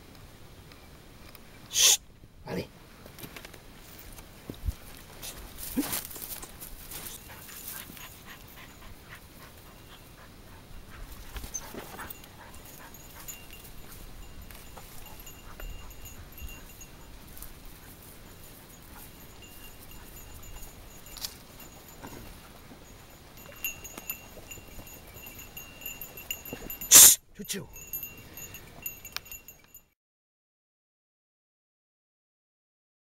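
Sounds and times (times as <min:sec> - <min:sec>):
dogs panting and whining: 0:07.0 - 0:26.9.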